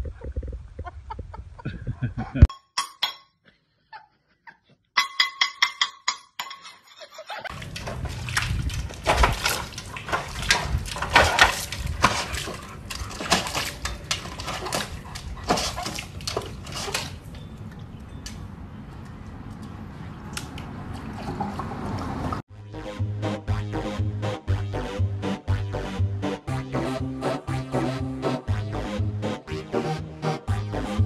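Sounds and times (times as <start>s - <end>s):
metal bowl knocking: 5.0s - 6.6s
water splashing in bowl: 7.5s - 18.4s.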